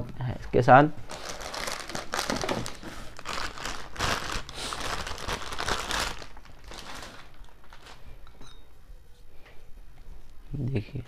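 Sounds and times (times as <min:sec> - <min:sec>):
plastic bag crinkling: 0:01.0 - 0:08.2.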